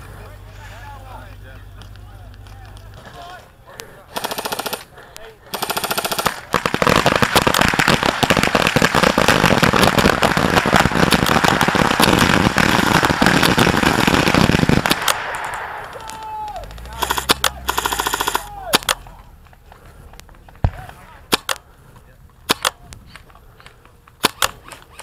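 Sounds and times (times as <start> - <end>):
airsoft guns firing: 3.0 - 19.2, 20.5 - 21.7, 22.4 - 25.0.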